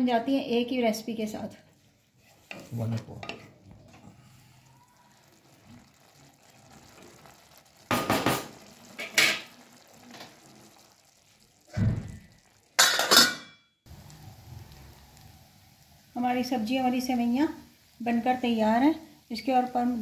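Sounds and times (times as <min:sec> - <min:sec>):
wooden spatula scraping metal pan: 0:02.1 - 0:03.6.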